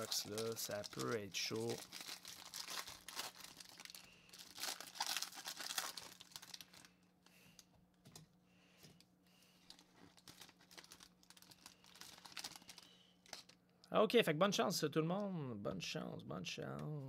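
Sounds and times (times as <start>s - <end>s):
foil wrapper crinkling and tearing: 0.0s - 7.0s, 9.6s - 13.6s.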